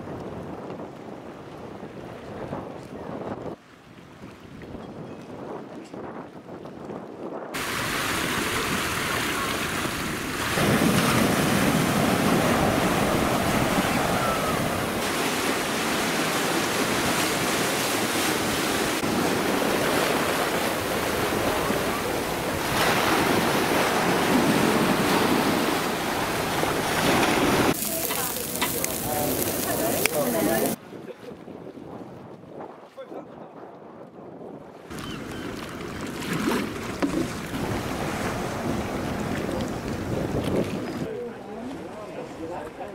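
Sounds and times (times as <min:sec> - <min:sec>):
seawater washing against wall: 0:07.6 - 0:30.8
faint voices: 0:27.8 - 0:30.8.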